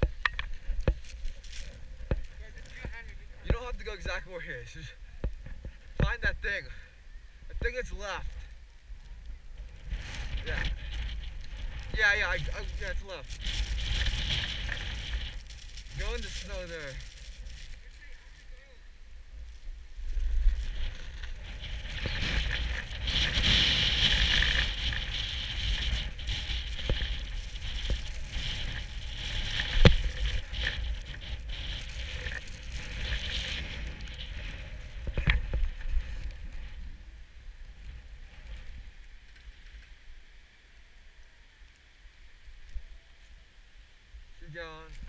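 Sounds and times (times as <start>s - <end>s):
wind buffeting microphone: 7.4s - 18.0s, 19.7s - 39.2s
snowboard scraping over snow: 9.6s - 18.4s, 19.4s - 39.8s.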